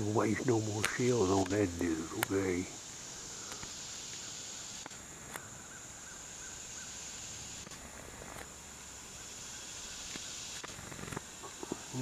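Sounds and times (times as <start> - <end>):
faint chirps: 0.0 - 12.0
insect chorus drone: 0.0 - 12.0
faint clicks: 3.4 - 5.5.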